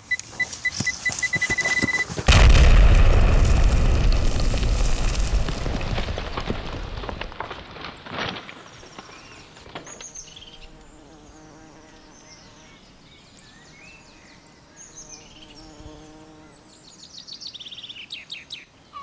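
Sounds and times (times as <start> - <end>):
birds chirping: 8.7 - 19.0
insect buzzing: 10.0 - 13.1, 13.9 - 17.0.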